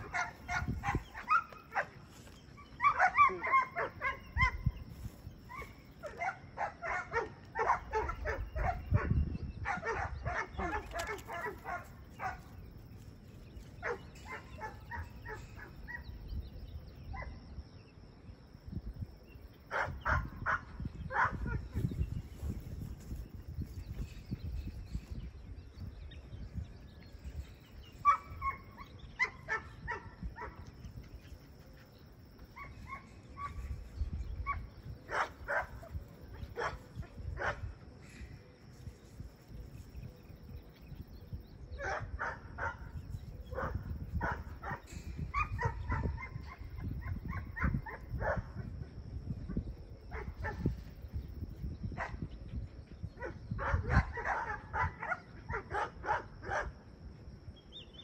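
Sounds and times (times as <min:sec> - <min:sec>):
dog barking: 0:00.0 - 0:02.0, 0:02.8 - 0:04.6, 0:05.5 - 0:12.4, 0:19.7 - 0:21.6, 0:34.5 - 0:35.9, 0:36.5 - 0:36.8, 0:41.8 - 0:42.9, 0:43.5 - 0:44.8, 0:45.4 - 0:48.5, 0:53.2 - 0:56.8
wind rumbling on microphone: 0:00.0 - 0:58.0.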